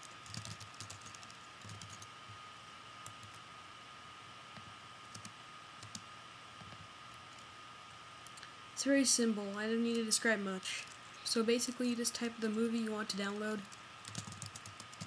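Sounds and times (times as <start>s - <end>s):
typing on a computer keyboard: 0.0s - 2.1s, 5.1s - 6.0s, 13.7s - 15.0s
faint steady whine: 0.0s - 15.0s.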